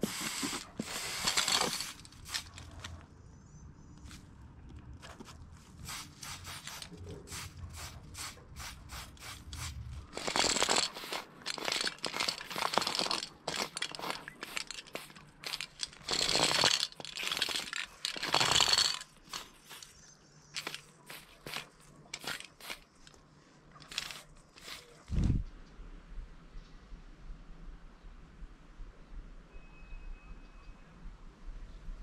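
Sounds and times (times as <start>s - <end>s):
aerosol spray can hissing: 0.0s - 2.5s, 5.8s - 20.0s, 20.6s - 22.8s, 23.9s - 25.0s.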